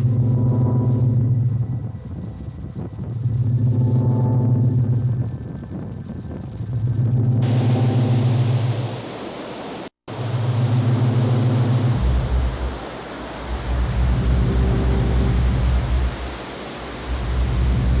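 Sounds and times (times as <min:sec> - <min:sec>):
deep low drone: 0:00.0 - 0:08.9, 0:10.2 - 0:18.0
surf washing over rocks: 0:07.4 - 0:18.0.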